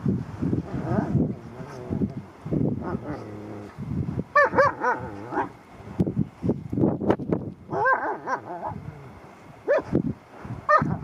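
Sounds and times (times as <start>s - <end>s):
dogs growling: 0.7s - 2.2s, 2.8s - 3.9s, 4.5s - 5.6s
dogs yipping: 4.4s - 5.5s.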